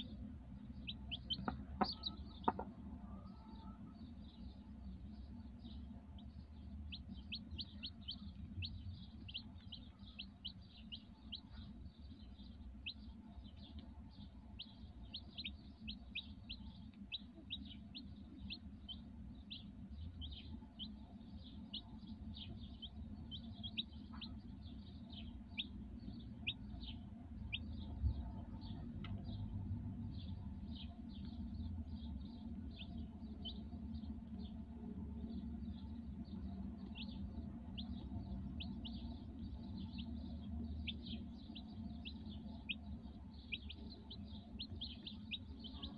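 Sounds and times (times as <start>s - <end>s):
chicks peeping: 0.0s - 45.9s.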